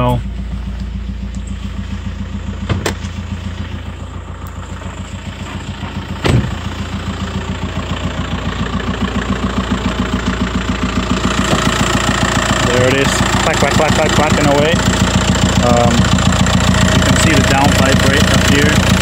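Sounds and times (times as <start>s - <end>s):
diesel engine idling: 0.0s - 19.0s
car door clunks: 2.5s - 3.2s, 5.4s - 6.7s.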